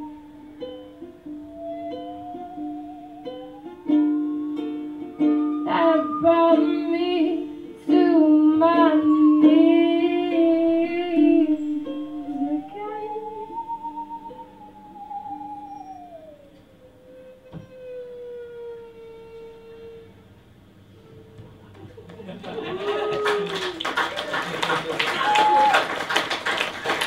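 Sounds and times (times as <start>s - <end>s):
plucked string notes: 0.0s - 16.0s
sliding wavering melody: 0.0s - 21.4s
held low note: 0.0s - 21.7s.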